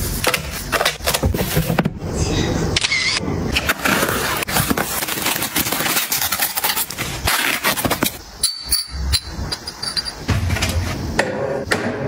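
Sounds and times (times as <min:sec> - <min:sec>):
packing tape tearing off cardboard: 0:03.6 - 0:08.2
crystal glass clinking: 0:08.4 - 0:10.2.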